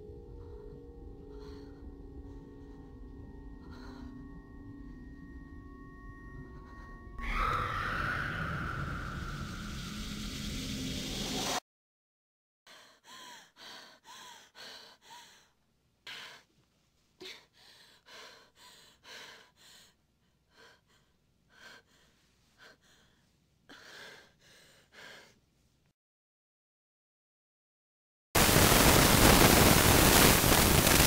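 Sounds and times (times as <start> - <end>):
person gasping for breath: 12.7 - 16.5.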